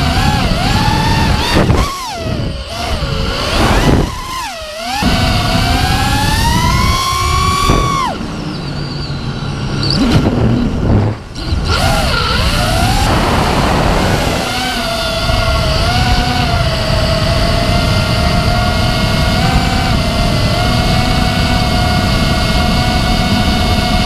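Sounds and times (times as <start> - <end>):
quadcopter motors whining: 0.0 - 24.0
wind rush on microphone: 0.0 - 24.0.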